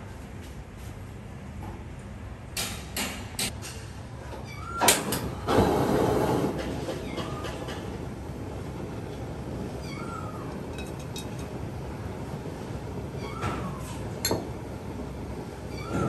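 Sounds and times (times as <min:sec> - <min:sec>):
gas flame rushing hiss: 0:05.0 - 0:07.0.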